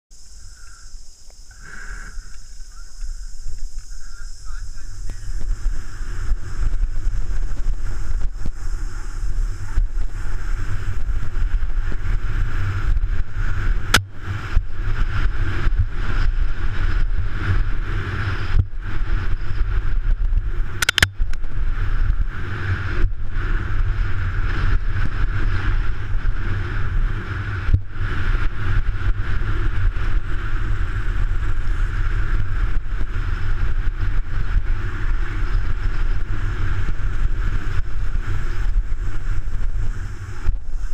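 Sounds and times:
bike rattling over dirt trail: 0.1 - 40.9
wind buffeting microphone: 0.2 - 40.9
sharp clicks: 20.8 - 21.4.

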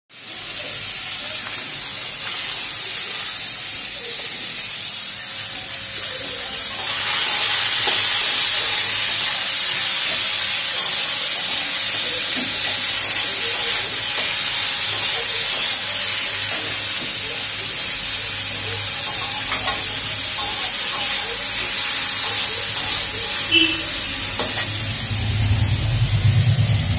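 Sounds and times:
vegetables sizzling in a wok: 0.1 - 26.9
metal spatula scraping a pan: 19.0 - 25.0.

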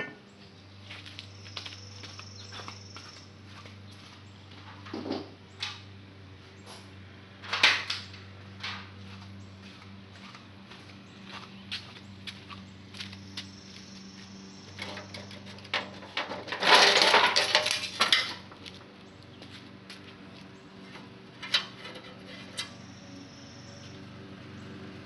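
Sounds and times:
sheet metal clattering and clinking: 14.8 - 18.6, 20.8 - 22.8.

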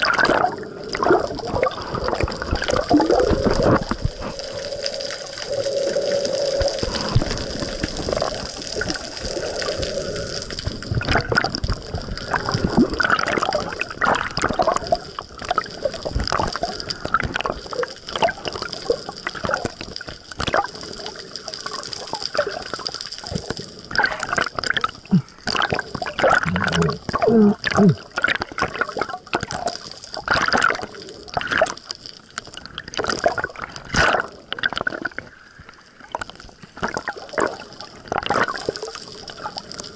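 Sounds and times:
water sloshing and bubbling: 0.0 - 39.9
water splashes: 0.0 - 39.9.

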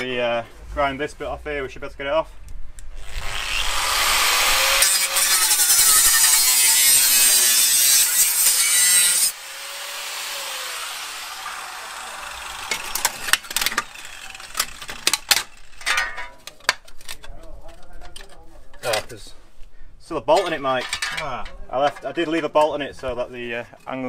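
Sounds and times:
angle grinder cutting metal: 3.0 - 16.0.

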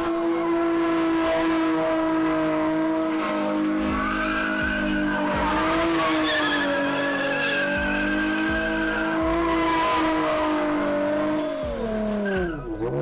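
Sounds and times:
car engine at high revs: 0.0 - 13.0
tyres squealing: 3.0 - 13.0.

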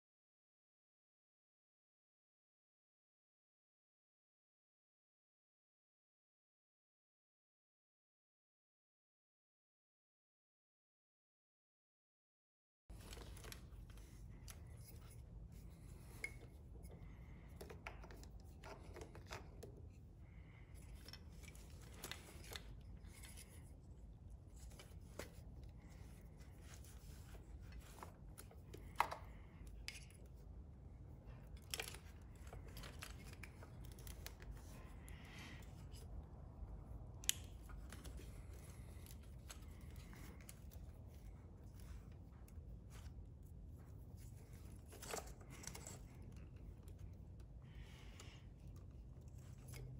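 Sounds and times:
low steady hum: 12.9 - 49.9
wiring rustling: 12.9 - 49.9.

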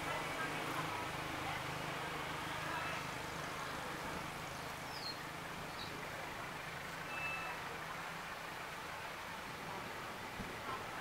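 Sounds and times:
distant diesel locomotive rumble: 0.0 - 11.0
faint high chirps: 7.1 - 7.6.

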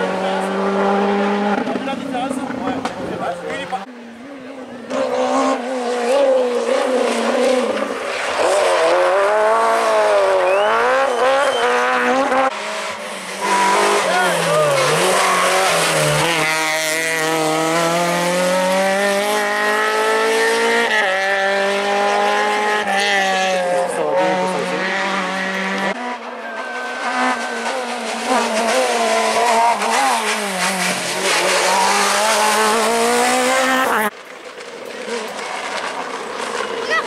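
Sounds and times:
second rally car engine revving: 0.0 - 34.1
rally car engine accelerating: 0.0 - 37.0.

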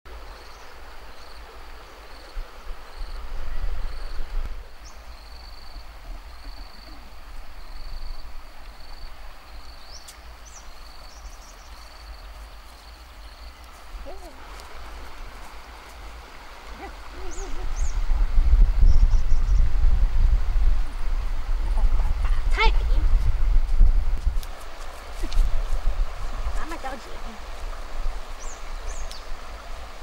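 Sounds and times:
insect chirping: 0.1 - 19.9
wind rumble on microphone: 2.3 - 4.9, 13.8 - 30.0.

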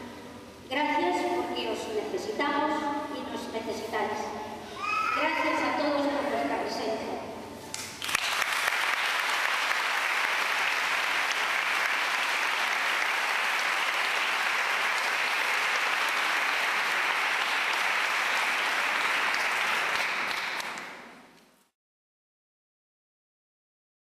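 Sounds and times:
audience applauding: 8.0 - 21.2.

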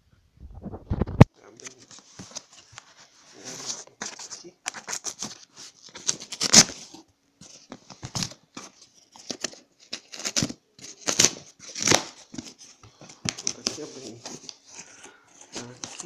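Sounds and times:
cardboard box tearing: 6.0 - 7.0, 9.1 - 12.6.

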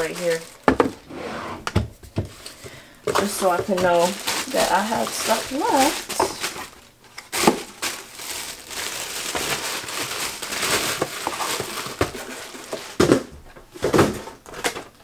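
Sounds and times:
plastic wrap crinkling: 0.0 - 1.1, 2.0 - 15.0.

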